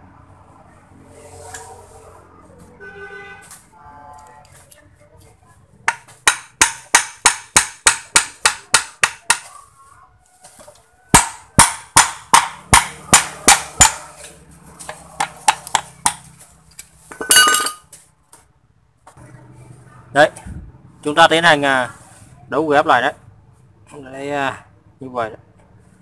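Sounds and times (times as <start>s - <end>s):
hammer striking metal: 5.9s - 9.5s, 11.1s - 14.2s.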